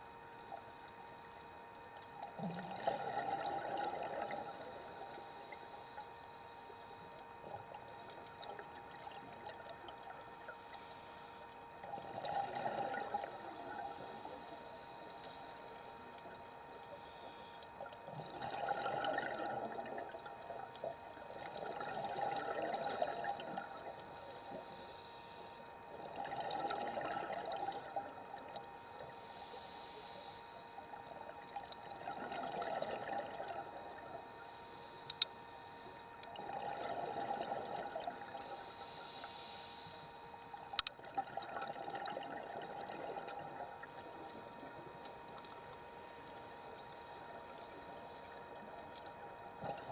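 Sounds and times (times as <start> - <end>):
underwater exhaust bubbling: 0.0 - 6.3, 7.0 - 29.3, 30.6 - 35.2, 35.9 - 39.3, 40.4 - 49.9
regulator inhale hiss: 4.2 - 7.3, 10.7 - 11.6, 13.0 - 18.3, 22.2 - 25.8, 27.5 - 31.4, 33.5 - 36.1, 38.2 - 40.8, 43.4 - 48.7
sharp clicks: 35.0 - 35.3, 40.7 - 41.0.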